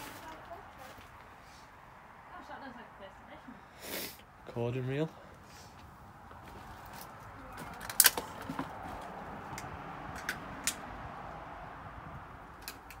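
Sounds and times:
footsteps crunching over twigs: 0:05.7 - 0:09.2.

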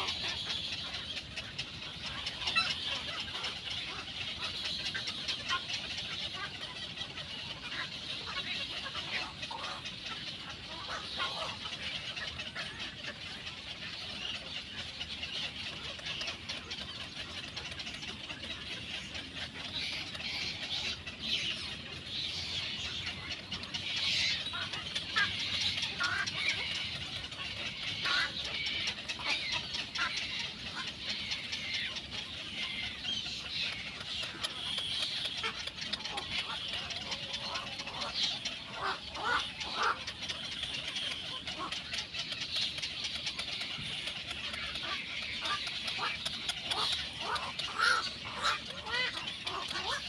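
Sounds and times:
chicks begging calls: 0:00.0 - 0:50.0.

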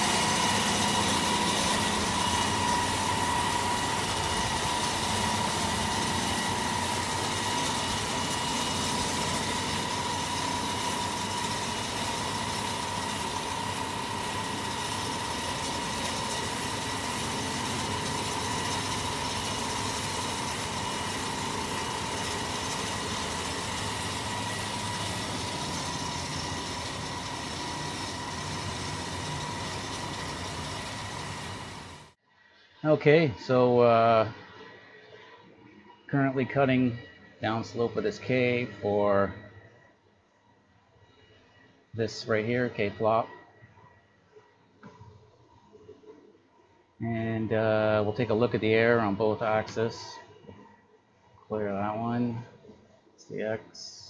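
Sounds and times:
wire saw high whine: 0:00.0 - 0:32.2.

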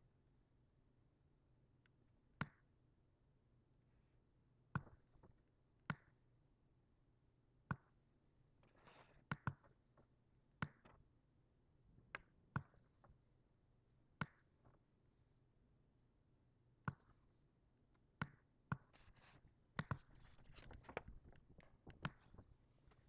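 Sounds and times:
computer mouse clicking: 0:08.7 - 0:09.7, 0:18.2 - 0:23.0.

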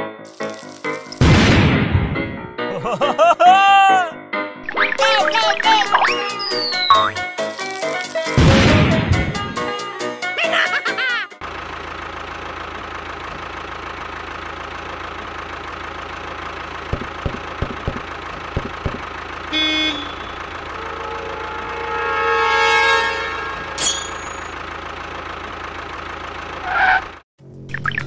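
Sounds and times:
pitched tone: 0:04.6 - 0:08.1
tractor engine running: 0:04.7 - 0:09.8, 0:11.4 - 0:22.4, 0:23.3 - 0:28.0
horn honk: 0:19.4 - 0:24.6.

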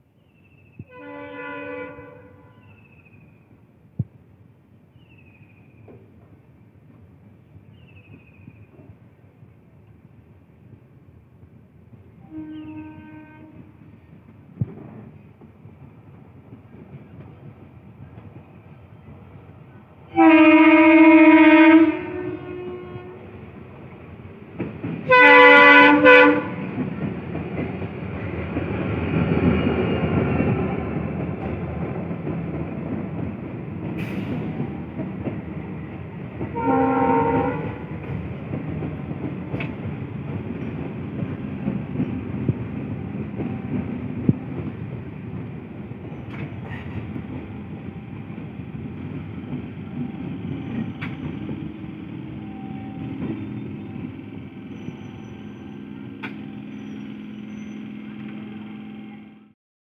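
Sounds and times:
train horn blast: 0:00.9 - 0:02.8, 0:12.2 - 0:13.8, 0:20.1 - 0:23.4, 0:25.0 - 0:26.8, 0:36.5 - 0:37.9, 0:52.3 - 0:54.1
train wheels rumbling and clattering: 0:02.6 - 0:58.7.

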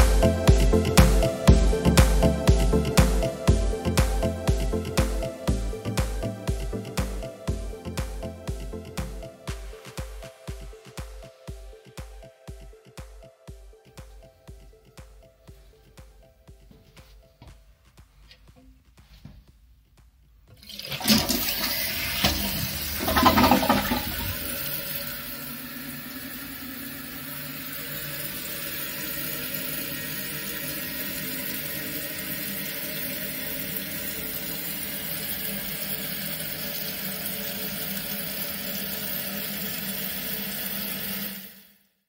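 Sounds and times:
fill valve hissing: 0:20.6 - 0:41.8
toilet flush water rushing: 0:20.6 - 0:41.9.

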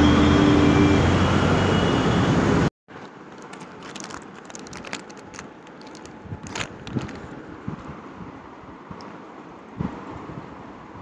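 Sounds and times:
loud street traffic: 0:00.0 - 0:02.7
sweet wrapper rustling: 0:03.2 - 0:07.4.

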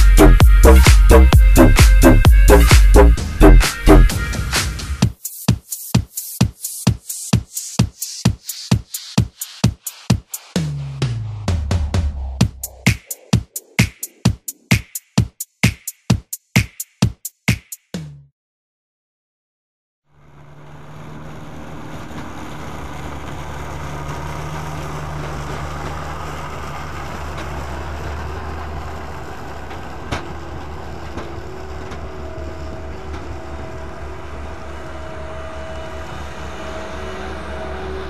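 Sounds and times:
diesel engine running: 0:00.0 - 0:05.0, 0:20.1 - 0:38.0.

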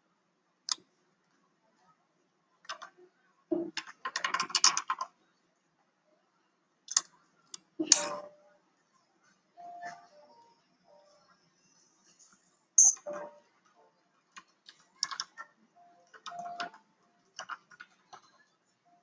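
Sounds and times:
keys clicking and tapping: 0:02.6 - 0:02.9, 0:03.7 - 0:05.1, 0:06.9 - 0:08.3, 0:12.8 - 0:13.4, 0:14.3 - 0:18.4.

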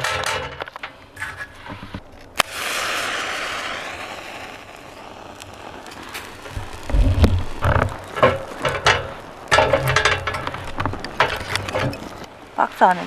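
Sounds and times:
match striking: 0:00.0 - 0:12.4
match head flaring hiss: 0:01.2 - 0:12.4.

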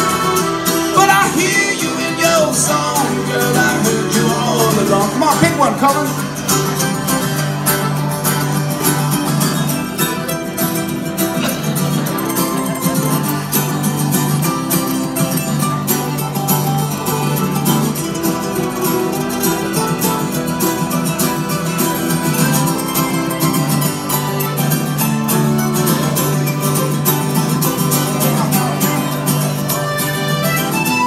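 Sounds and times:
mandolin solo: 0:00.0 - 0:31.0
button accordion: 0:15.6 - 0:31.0.

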